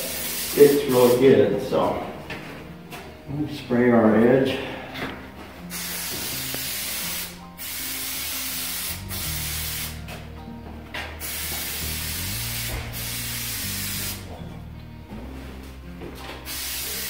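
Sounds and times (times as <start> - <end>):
aerosol spray can hissing: 0.0 - 1.2, 5.7 - 10.0, 11.2 - 14.3, 16.5 - 17.0.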